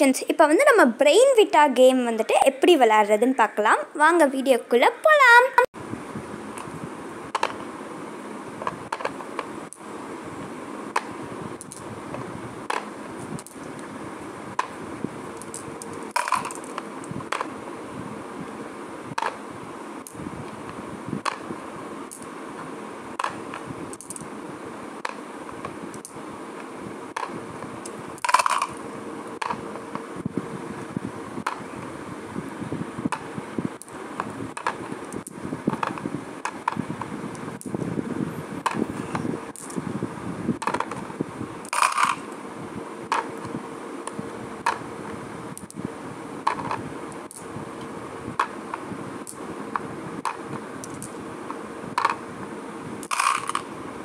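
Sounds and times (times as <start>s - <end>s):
steady hum: 0.0s - 54.0s
marbles clattering: 15.4s - 17.4s, 28.2s - 28.8s, 41.7s - 42.3s, 53.0s - 53.7s
glass marbles clicking: 28.2s - 28.8s, 41.7s - 42.2s, 53.0s - 53.6s.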